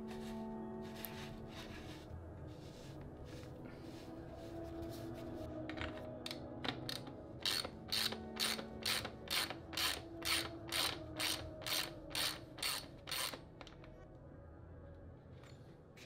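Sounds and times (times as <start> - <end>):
ratchet wrench pawl clicking: 7.4 - 13.4.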